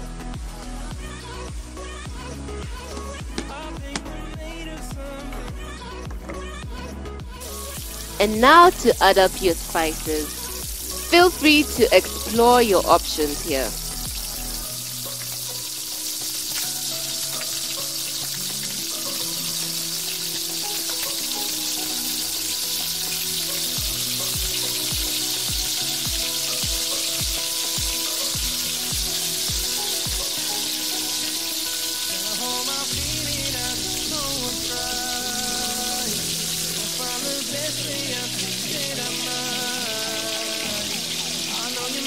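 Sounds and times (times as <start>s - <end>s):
background music: 0.0s - 42.0s
kick drum beat: 0.4s - 8.6s, 23.8s - 30.3s
paste sizzling in a pan: 7.4s - 8.8s, 10.2s - 42.0s.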